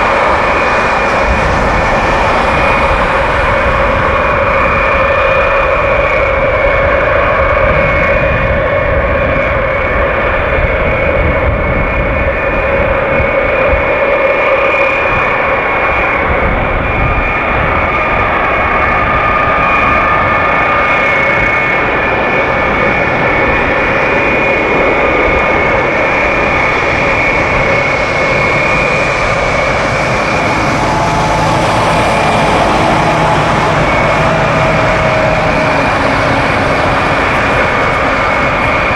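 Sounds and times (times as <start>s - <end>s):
jet engine whine: 0.0s - 38.9s
low rumble: 26.5s - 38.9s.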